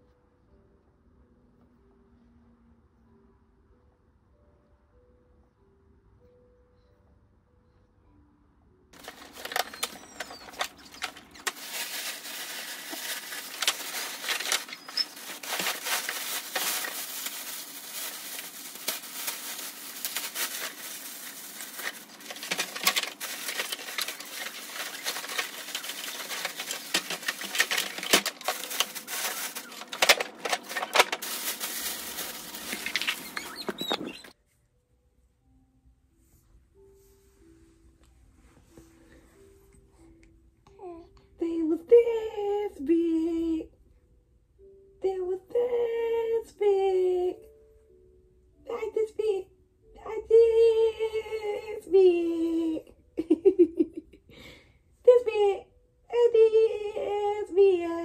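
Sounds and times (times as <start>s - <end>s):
plastic bag crinkling: 9.0s - 34.4s.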